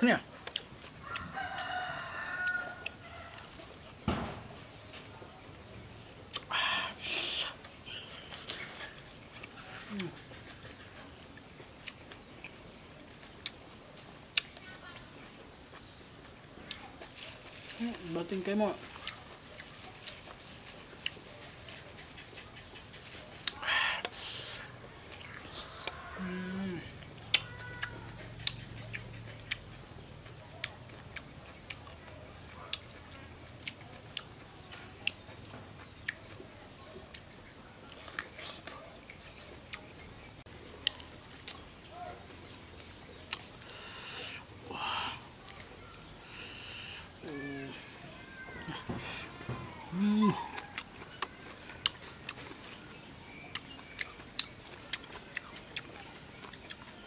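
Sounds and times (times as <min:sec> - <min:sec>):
wet clicks of eating fruit: 0:00.4 - 0:03.7, 0:11.3 - 0:15.1, 0:25.0 - 0:26.1, 0:27.0 - 0:43.8, 0:48.6 - 0:57.0.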